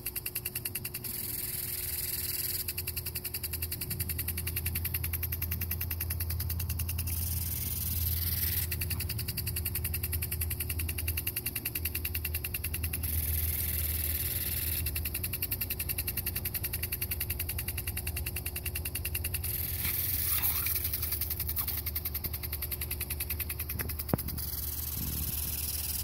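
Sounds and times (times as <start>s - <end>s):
sprinkler spraying water: 0.0s - 26.0s
steady low rumble: 16.1s - 26.0s.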